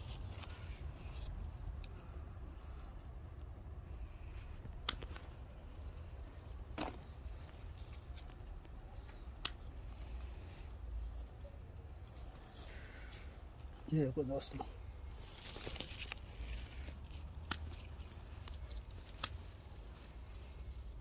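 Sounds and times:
scissors snipping stems: 4.7s - 5.3s, 8.7s - 10.1s, 15.7s - 20.4s.

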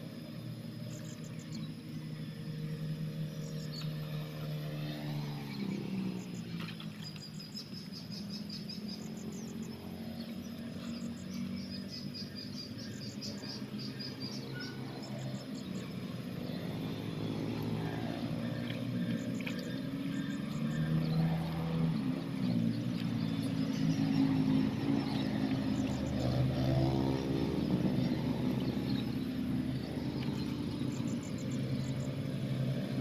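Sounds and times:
distant engine drone: 0.0s - 33.0s
insects chirping in trills: 0.0s - 33.0s.

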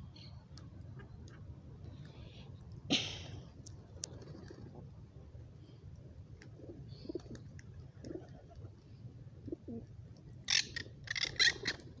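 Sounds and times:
pigeons cooing softly: 3.8s - 4.9s, 6.4s - 9.9s.

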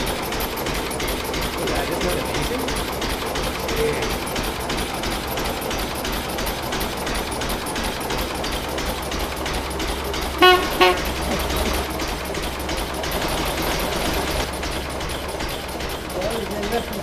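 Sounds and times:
car engine idling: 0.0s - 17.0s
car horn toot: 10.4s - 11.3s.

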